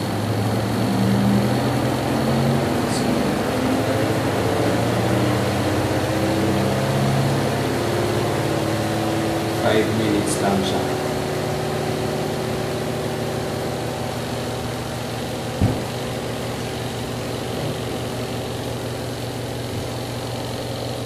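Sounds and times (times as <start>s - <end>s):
spin-dryer motor humming: 0.0s - 21.0s
single knock: 15.6s - 15.9s.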